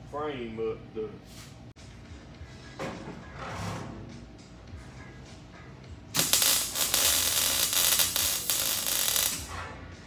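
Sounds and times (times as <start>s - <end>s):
welding arc crackling and hissing: 6.2s - 9.5s.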